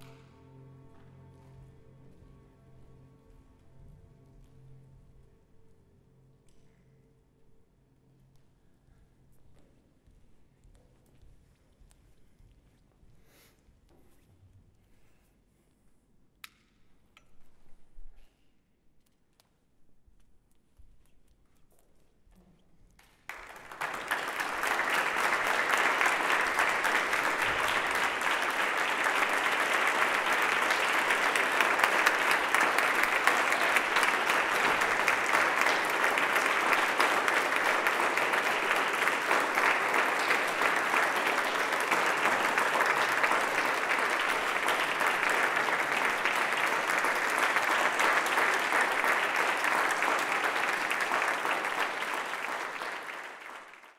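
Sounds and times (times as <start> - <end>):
audience applauding: 23.3 - 53.9.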